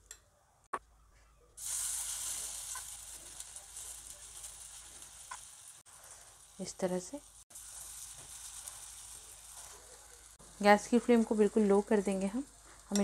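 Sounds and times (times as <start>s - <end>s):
batter sizzling in hot oil: 1.6s - 13.0s.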